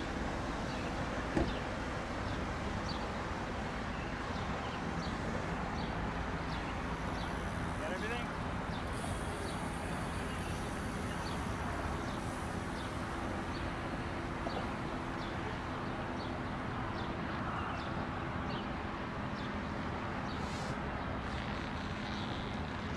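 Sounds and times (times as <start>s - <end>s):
outdoor rumble: 20.2s - 22.9s.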